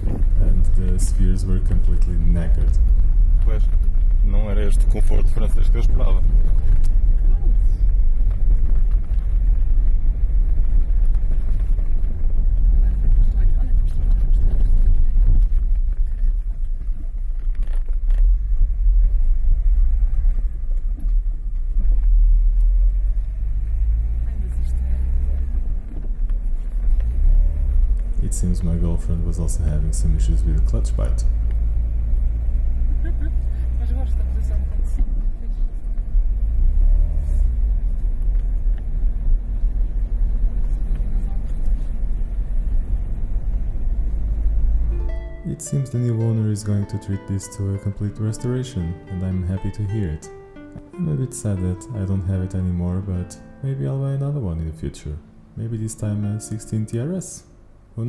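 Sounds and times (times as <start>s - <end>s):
car interior rumble: 0.0s - 58.0s.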